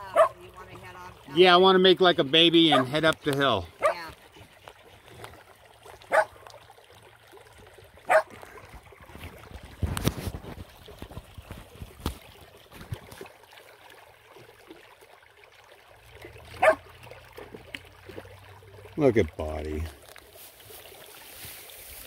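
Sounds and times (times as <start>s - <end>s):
river trickling over stones: 0.0s - 22.0s
dog barking: 0.1s - 0.4s, 2.7s - 3.0s, 3.8s - 4.0s, 6.1s - 6.4s, 8.1s - 8.3s, 16.6s - 16.8s.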